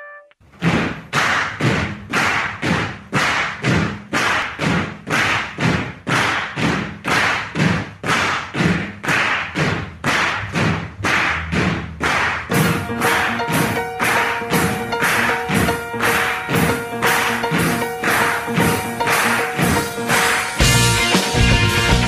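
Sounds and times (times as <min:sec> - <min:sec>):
rock music with driving beat: 0:19.2 - 0:22.0.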